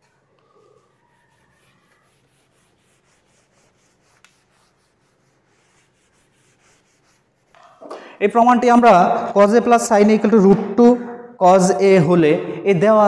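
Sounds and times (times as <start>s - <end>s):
eraser rubbing on whiteboard: 0.4s - 7.8s.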